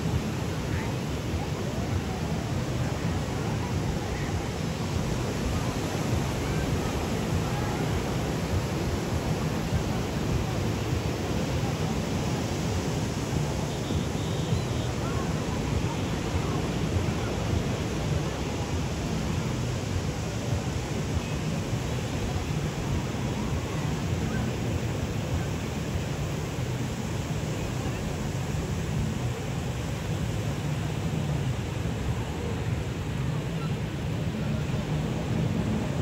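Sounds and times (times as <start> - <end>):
people chattering and calling: 0.0 - 36.0.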